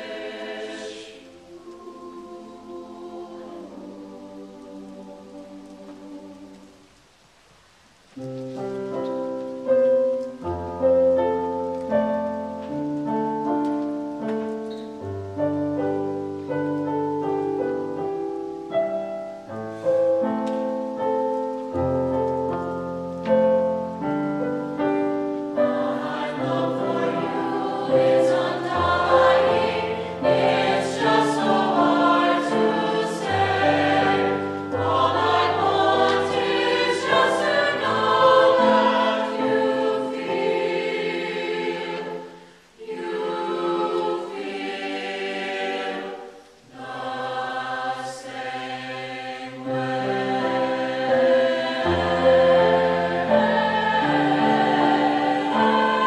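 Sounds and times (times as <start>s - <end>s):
mixed choir singing: 0.0s - 6.9s, 23.3s - 56.0s.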